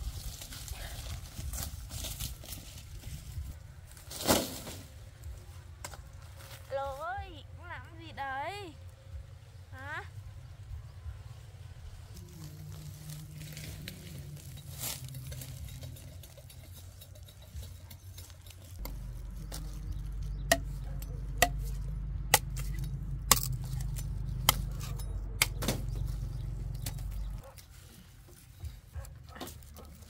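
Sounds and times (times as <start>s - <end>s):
low steady rumble: 8.9s - 27.6s
machete chopping sugarcane: 20.4s - 26.1s.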